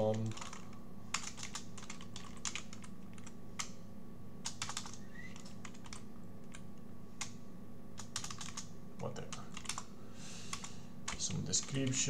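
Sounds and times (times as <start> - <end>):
keyboard typing clicks: 0.0 - 3.8, 4.4 - 6.6, 8.0 - 8.7, 9.3 - 9.9
low steady hum: 0.0 - 12.0.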